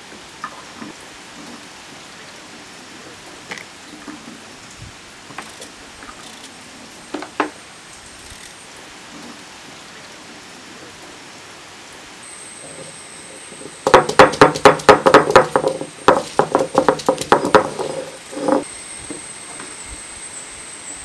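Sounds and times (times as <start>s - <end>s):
stone-on-stone knocks: 13.8s - 18.6s.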